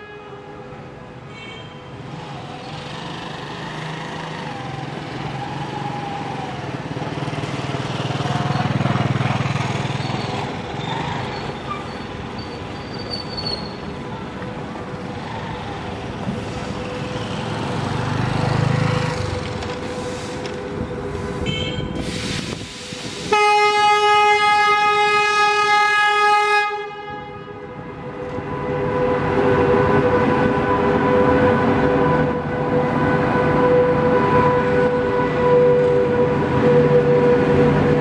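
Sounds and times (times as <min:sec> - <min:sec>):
locomotive horn blast: 0:00.0 - 0:01.9, 0:19.2 - 0:22.3, 0:23.2 - 0:38.0
train running past with a rumble: 0:00.0 - 0:38.0.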